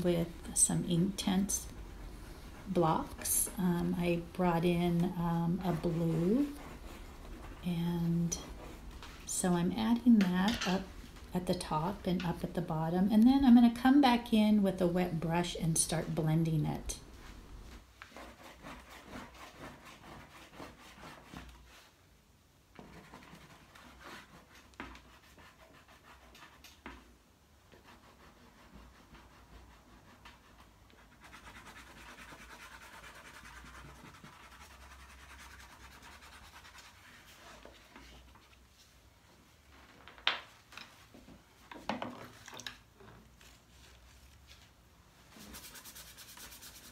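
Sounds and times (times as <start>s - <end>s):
paintbrush scratching on paper: 0.0s - 9.3s, 18.1s - 21.9s, 22.8s - 26.7s, 27.7s - 38.2s, 45.3s - 46.9s.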